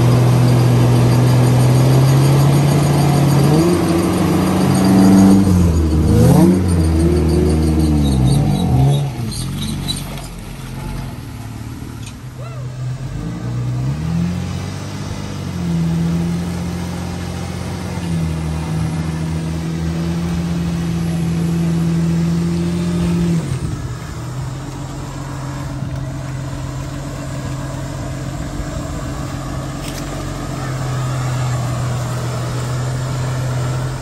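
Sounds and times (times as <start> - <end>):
car engine revving: 0.0 - 34.0.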